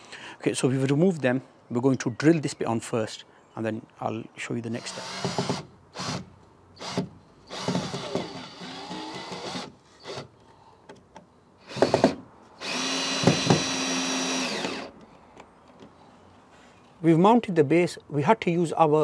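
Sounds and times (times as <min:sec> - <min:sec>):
cordless drill driving screws: 0:04.8 - 0:10.3, 0:11.6 - 0:14.9.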